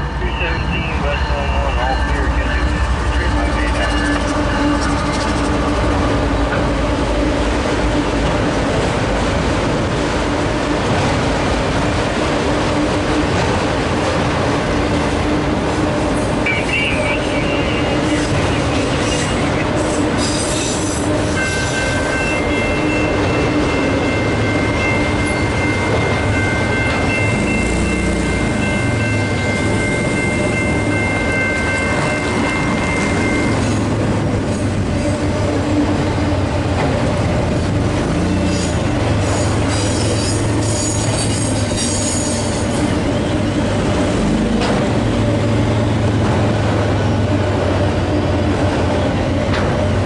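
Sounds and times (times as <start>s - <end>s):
freight cars rolling on rails: 0.0s - 50.0s
high-pitched wheel squeal: 38.4s - 42.9s.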